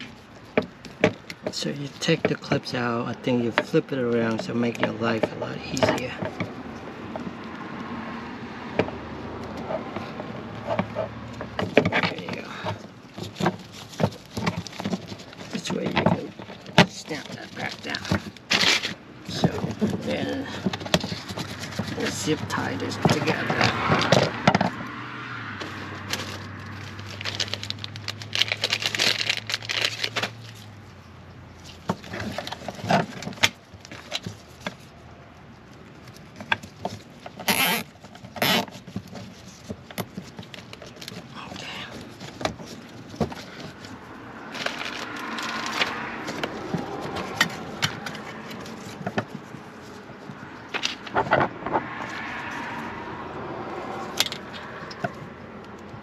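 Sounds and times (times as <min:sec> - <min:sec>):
hands rustling wiring and trim: 0:00.0 - 0:56.0
cable tie pulled tight: 0:36.1 - 0:41.3.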